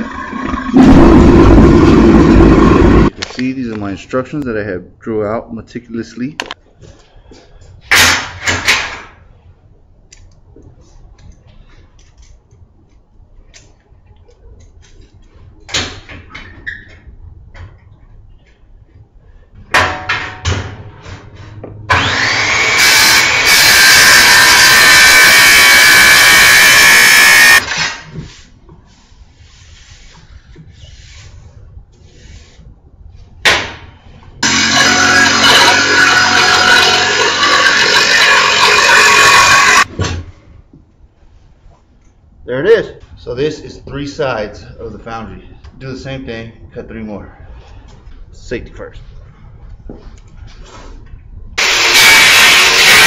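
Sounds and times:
metal clanks and knocks: 0:19.6 - 0:21.8
angle grinder cutting steel: 0:21.9 - 0:28.1, 0:34.4 - 0:39.9, 0:51.6 - 0:53.0.

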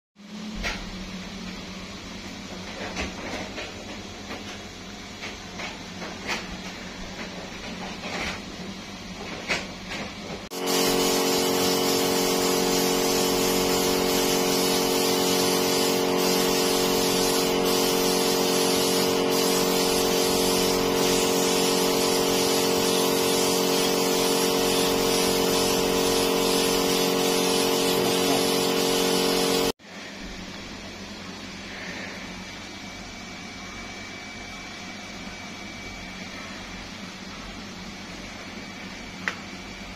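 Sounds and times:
steady hum: 0:00.2 - 0:39.9
spray gun hissing: 0:10.5 - 0:29.8.

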